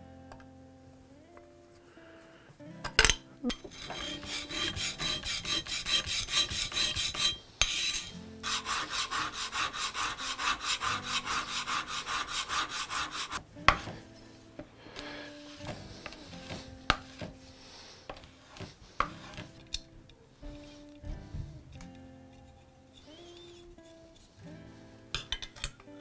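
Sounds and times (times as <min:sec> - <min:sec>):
metal scraping on sharpening plate: 0:03.0 - 0:13.9, 0:22.9 - 0:24.3.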